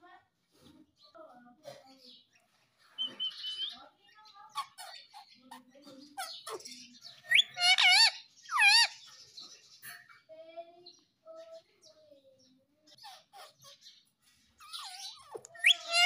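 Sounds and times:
parakeet chattering: 3.0s - 9.1s, 12.9s - 16.0s
parakeet warbling calls: 7.2s - 9.0s, 14.6s - 16.0s.

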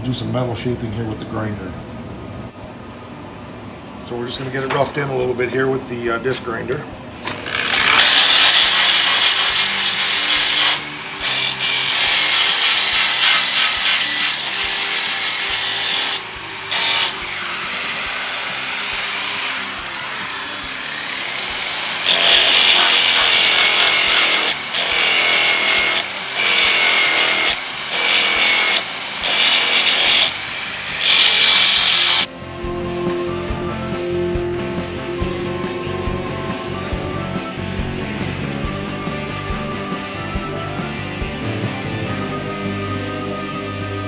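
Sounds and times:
angle grinder rasping on steel: 7.3s - 32.3s.

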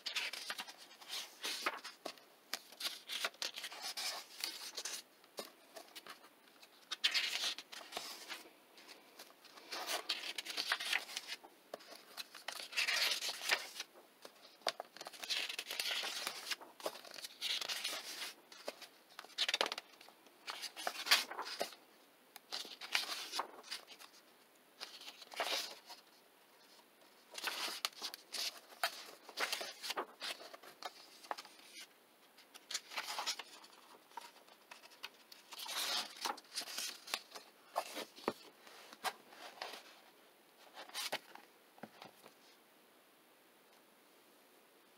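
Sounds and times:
paper pages turning: 0.0s - 21.8s, 22.4s - 24.2s, 24.8s - 39.9s, 40.7s - 42.1s.

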